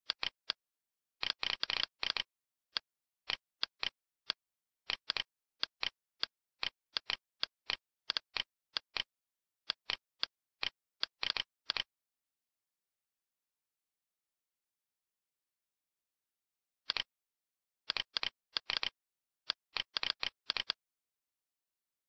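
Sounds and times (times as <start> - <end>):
computer mouse clicking: 0.1 - 0.6, 1.2 - 9.1, 9.7 - 11.9, 16.9 - 17.1, 17.9 - 20.8.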